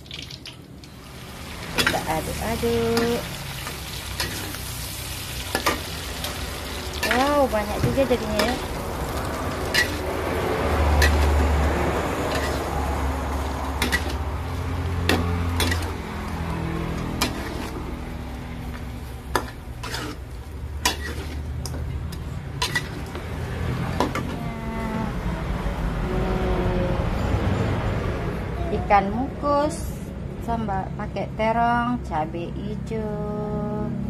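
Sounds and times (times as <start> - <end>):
food sizzling: 0.0 - 25.2
metal spatula scraping a wok: 1.6 - 24.4.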